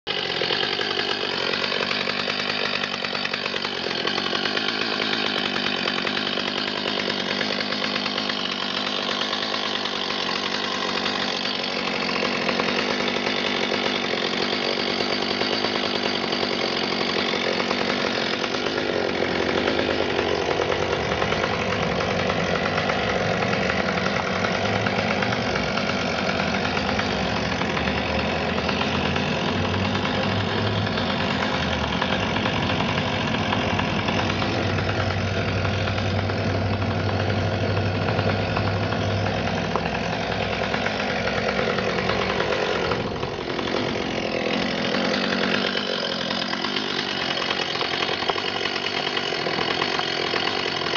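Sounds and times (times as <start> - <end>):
chainsaw cutting log: 0.1 - 50.9.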